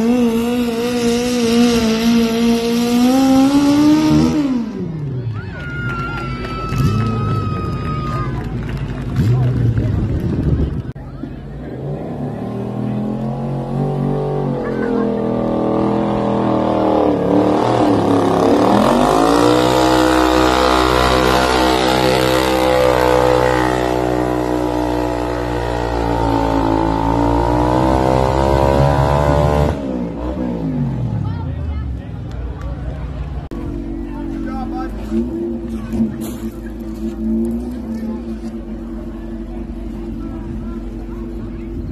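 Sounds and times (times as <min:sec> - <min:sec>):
motorcycle engine revving high: 0:00.0 - 0:05.3, 0:11.6 - 0:31.6.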